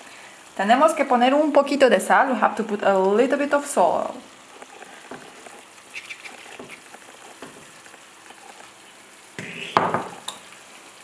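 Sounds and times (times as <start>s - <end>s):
sauce sizzling in frying pan: 0.0s - 11.0s
wooden spatula scraping pan: 4.5s - 7.7s.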